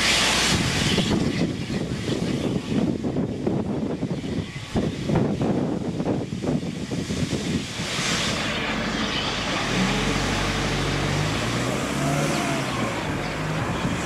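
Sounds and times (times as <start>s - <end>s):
steam hissing: 0.0s - 1.3s, 2.0s - 14.0s
low steady drone: 4.1s - 14.0s.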